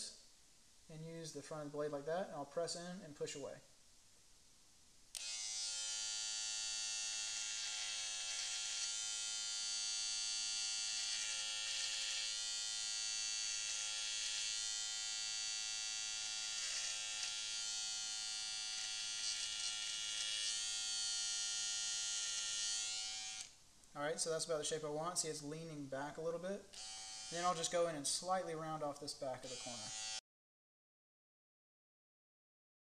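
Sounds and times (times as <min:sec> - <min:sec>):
electric beard trimmer buzzing: 0:05.2 - 0:23.6, 0:26.7 - 0:27.8, 0:29.4 - 0:30.2.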